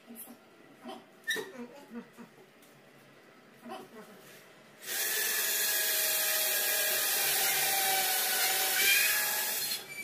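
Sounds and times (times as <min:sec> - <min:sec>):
cordless drill drilling into wood: 0:04.8 - 0:09.9.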